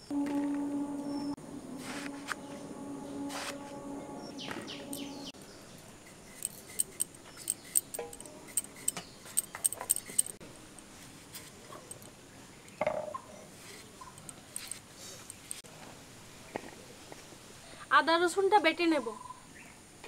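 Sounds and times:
low hum: 0.0s - 10.4s.

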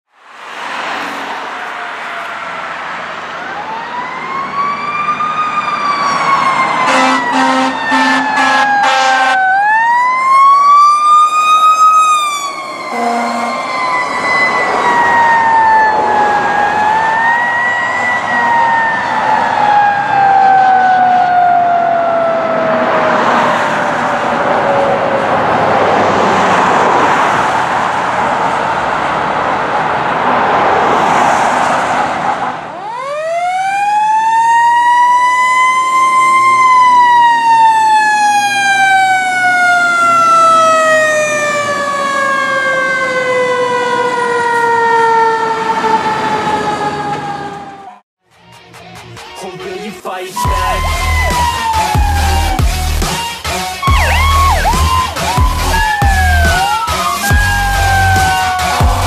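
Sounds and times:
road noise: 0.0s - 59.0s
fire engine siren wailing: 0.7s - 48.1s, 50.4s - 59.0s
air horn blasts: 6.8s - 9.4s, 12.9s - 13.7s, 53.8s - 55.1s.

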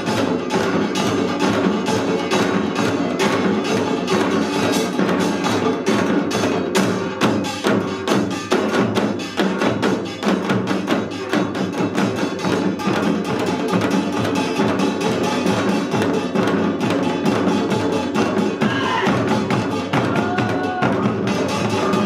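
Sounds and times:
fast drumming: 0.0s - 22.0s.

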